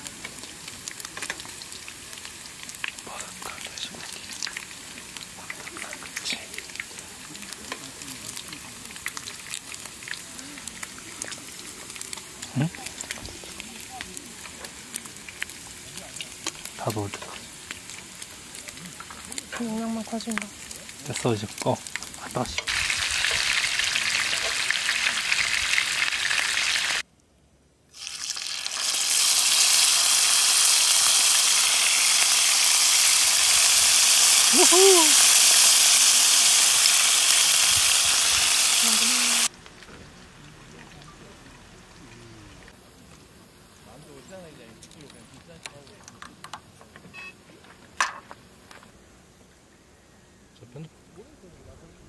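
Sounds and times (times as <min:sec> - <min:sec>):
fat popping and crackling: 0:00.0 - 0:25.2, 0:28.0 - 0:43.3
pork frying and sizzling: 0:00.0 - 0:27.1, 0:27.9 - 0:46.3.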